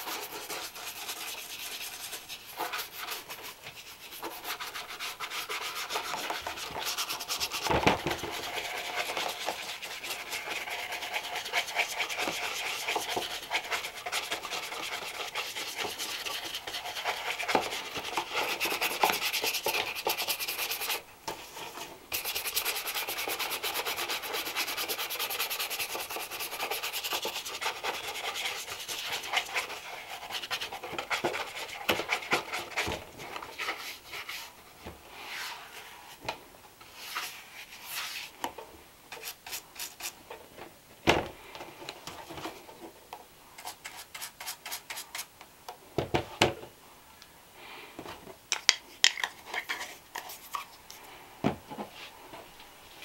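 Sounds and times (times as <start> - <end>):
brush scrubbing leather shoe: 0.0 - 7.6, 8.3 - 21.0, 22.1 - 32.7.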